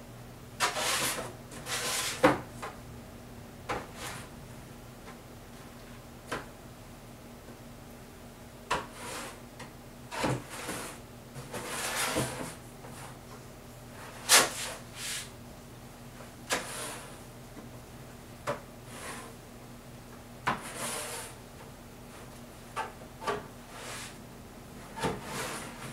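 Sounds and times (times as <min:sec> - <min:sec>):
putty knife scraping board: 0:00.6 - 0:02.4, 0:08.7 - 0:09.4, 0:10.1 - 0:12.6, 0:16.5 - 0:17.1, 0:20.5 - 0:21.4, 0:24.9 - 0:25.9.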